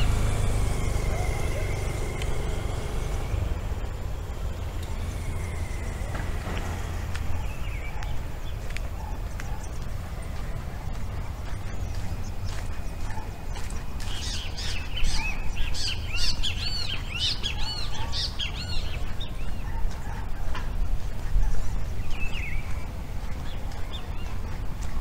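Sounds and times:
low rumble: 0.0s - 14.2s
birds chirping: 0.0s - 25.0s.

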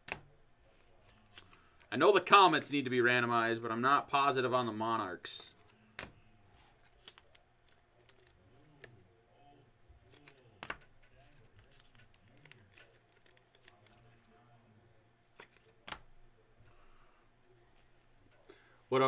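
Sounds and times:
trading cards clicking and rustling: 5.2s - 9.0s, 10.0s - 14.4s, 15.3s - 16.8s.

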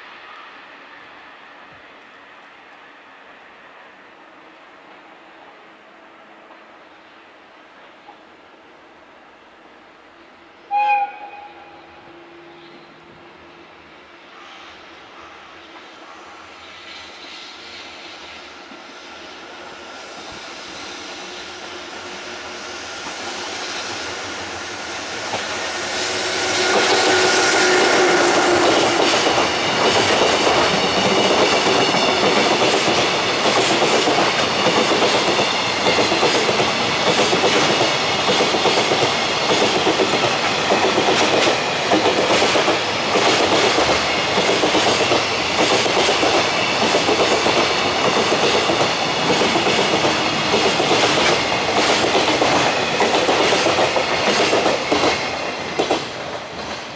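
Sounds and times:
train wheels clacking over rail joints: 25.2s - 56.9s.

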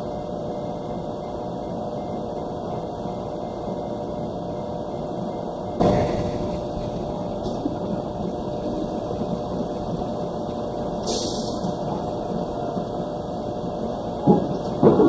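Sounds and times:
mechanical hum and rumble: 0.0s - 15.0s
brief hiss: 11.0s - 11.7s.

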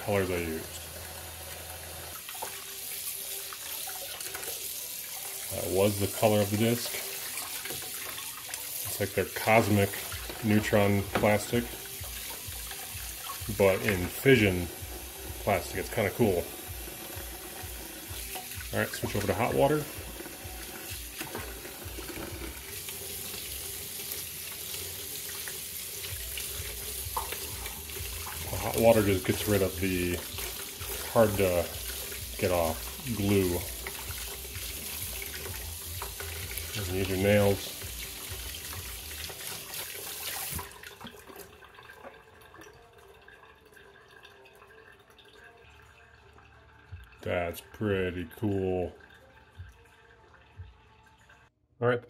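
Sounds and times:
tap water running into tub: 0.0s - 51.5s
water splashing: 2.1s - 42.9s.

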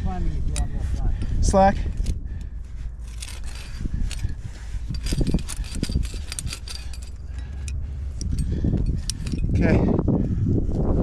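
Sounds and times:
steady low rumble: 0.0s - 11.0s
metal climbing gear clinking: 0.4s - 10.0s.

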